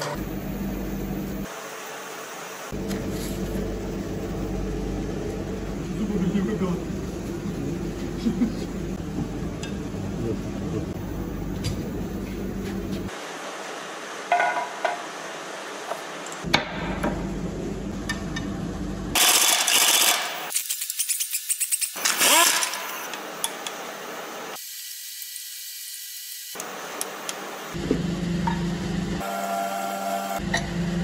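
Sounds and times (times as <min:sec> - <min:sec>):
metal parts and tools clinking: 0:19.2 - 0:23.6
power tool rattling: 0:21.9 - 0:23.1.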